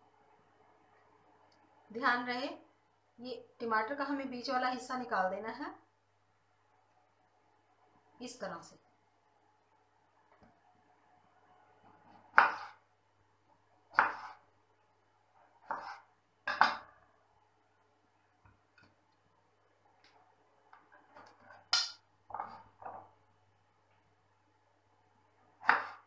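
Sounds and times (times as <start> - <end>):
knife chopping on wooden board: 12.1 - 12.8, 13.9 - 14.4, 15.6 - 16.8, 25.6 - 26.0.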